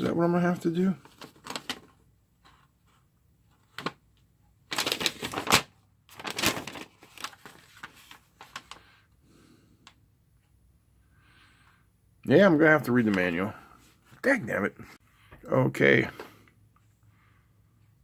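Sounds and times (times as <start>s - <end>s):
paper rustling and crackling: 0.5s - 4.0s, 4.7s - 9.0s.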